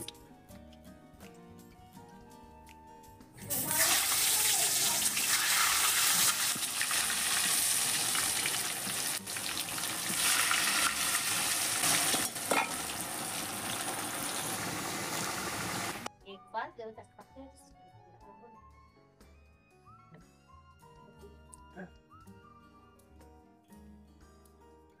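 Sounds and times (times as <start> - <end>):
potatoes sizzling in hot oil: 3.5 - 16.1
metal spatula stirring: 11.9 - 12.9.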